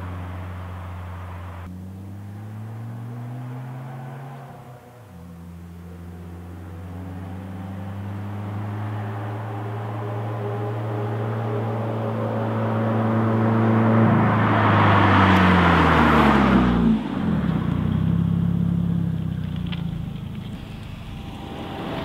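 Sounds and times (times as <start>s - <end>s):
car exhaust passing by: 0.0s - 22.0s.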